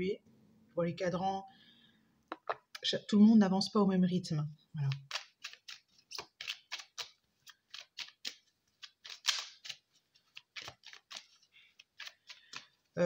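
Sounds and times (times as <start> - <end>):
cards being shuffled: 4.8 - 13.0.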